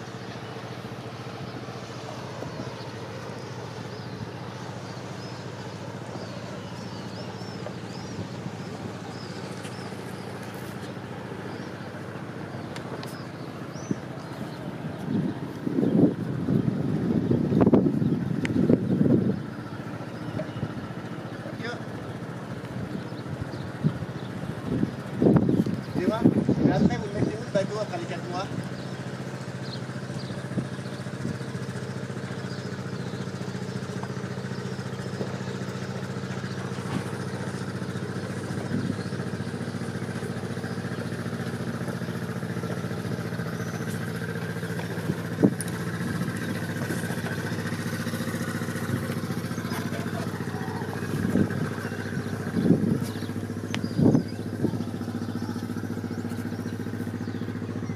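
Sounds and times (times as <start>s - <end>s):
engine idling: 0.0s - 57.9s.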